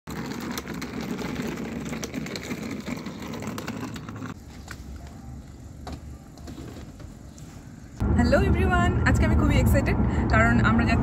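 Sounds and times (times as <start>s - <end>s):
suitcase wheels rolling on concrete: 0.1s - 7.4s.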